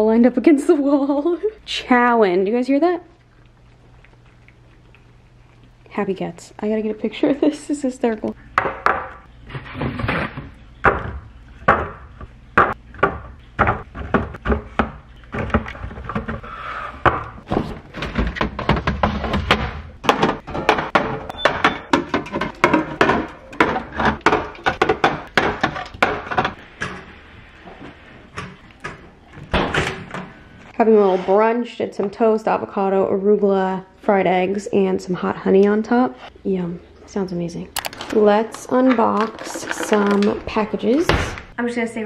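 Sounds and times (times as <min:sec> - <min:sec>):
items knocking on counter: 0:10.8 - 0:16.4, 0:17.0 - 0:27.0.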